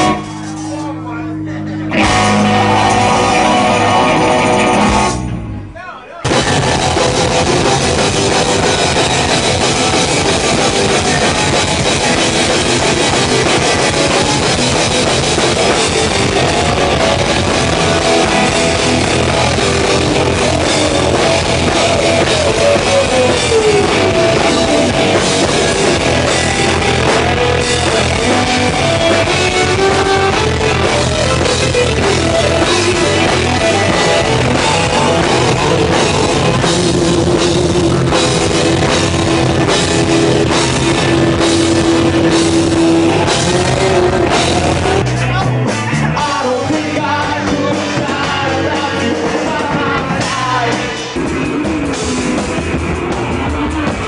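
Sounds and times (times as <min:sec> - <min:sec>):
loud rock band music: 0:00.0 - 0:54.0.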